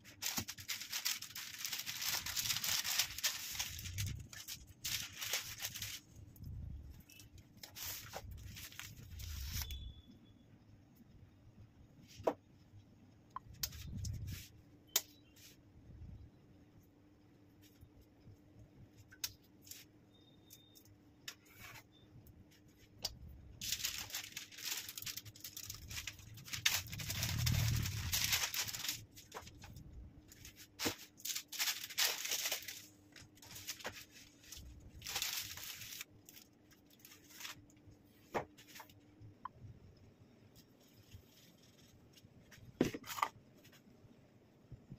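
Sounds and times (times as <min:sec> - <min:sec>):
baking paper rustling: 0:00.0 - 0:09.9, 0:23.5 - 0:39.0.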